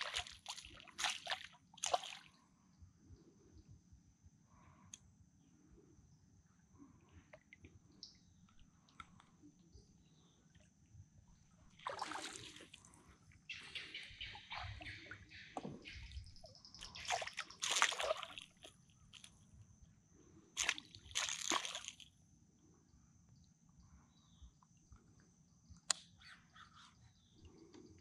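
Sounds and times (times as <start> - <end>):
fish splashing at water surface: 0.0 - 2.3, 11.8 - 12.8, 16.8 - 19.3, 20.6 - 22.0.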